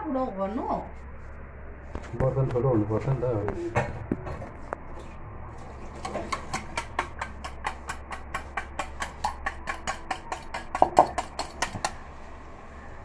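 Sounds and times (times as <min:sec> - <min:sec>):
whisk clicking against steel bowl: 0:06.0 - 0:12.0.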